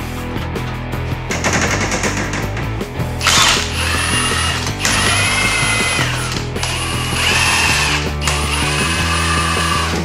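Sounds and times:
impact wrench whining: 3.2s - 10.0s.

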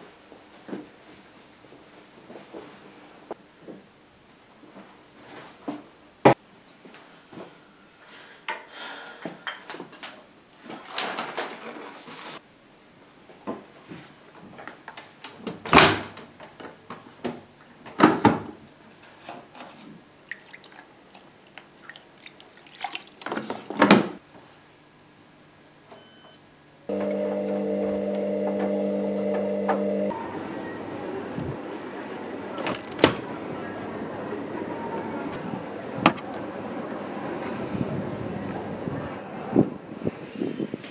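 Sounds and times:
short beep: 26.0s - 26.4s
microwave oven humming: 26.0s - 31.3s.

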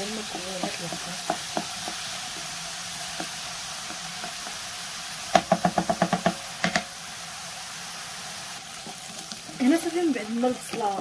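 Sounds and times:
onion sizzling in frying pan: 0.0s - 11.0s
utensil knocking against pan: 5.3s - 6.9s.

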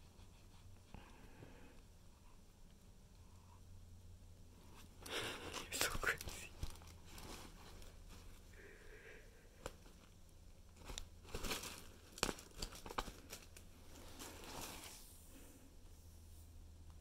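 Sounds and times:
nylon tunnel rustling and crinkling: 5.5s - 8.6s, 9.6s - 15.5s.

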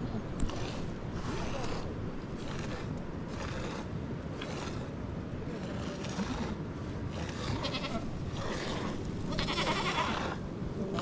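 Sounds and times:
low background noise: 0.0s - 11.0s
goats bleating: 7.6s - 8.1s, 9.3s - 10.4s.

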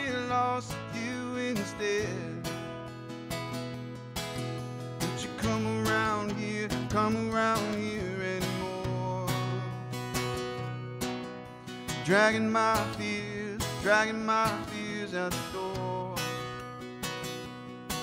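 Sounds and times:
acoustic guitar country instrumental: 0.0s - 18.0s.

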